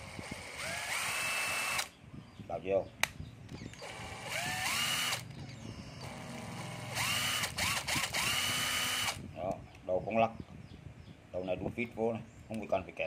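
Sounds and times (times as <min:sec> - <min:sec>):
cordless drill motor whining: 0:00.0 - 0:01.9, 0:03.6 - 0:09.2.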